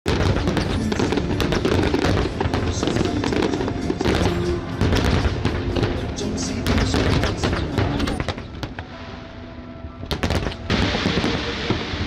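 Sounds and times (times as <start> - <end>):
loud music: 0.1 - 8.4
fireworks bursting and crackling: 0.1 - 9.2, 10.1 - 12.0.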